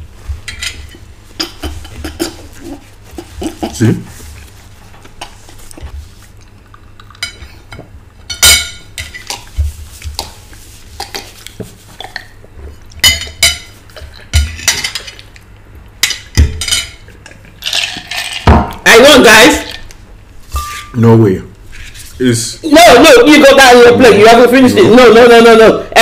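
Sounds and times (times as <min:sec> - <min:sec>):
forks scraping on plates: 0:00.4 - 0:03.8, 0:20.5 - 0:21.0.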